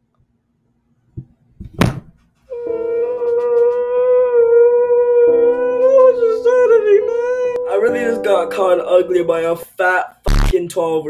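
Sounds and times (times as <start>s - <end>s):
long held wailing tone: 2.5s - 9.4s
sharp hit: 10.3s - 10.6s.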